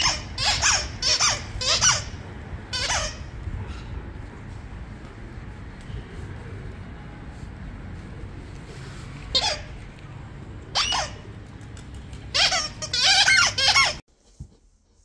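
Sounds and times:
squeaky dog toy squeaking: 0:00.0 - 0:03.3, 0:09.3 - 0:09.8, 0:10.7 - 0:11.2, 0:12.3 - 0:14.0
street noise: 0:00.0 - 0:14.0.

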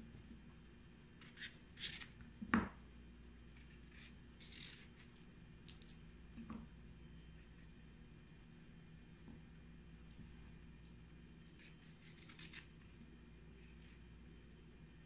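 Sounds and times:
knife scraping cuts: 0:01.2 - 0:02.2, 0:03.6 - 0:06.0, 0:11.4 - 0:12.8.

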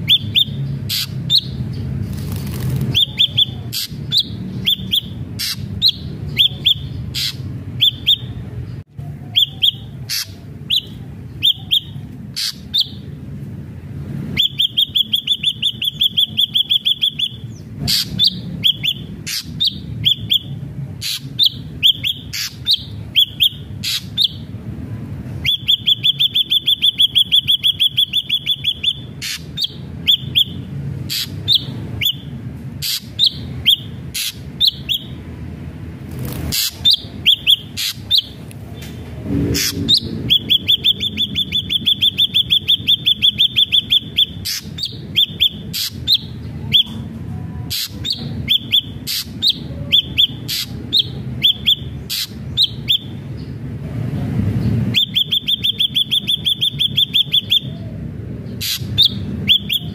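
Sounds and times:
bird rapid trill: 0:00.0 - 0:08.4, 0:09.3 - 0:13.0, 0:14.3 - 0:24.5, 0:25.4 - 0:35.2, 0:36.2 - 0:38.4, 0:39.5 - 0:47.0, 0:47.7 - 0:53.2, 0:54.8 - 0:59.9
bird whistled notes and clicks: 0:39.6 - 0:47.0, 0:54.9 - 0:57.8.

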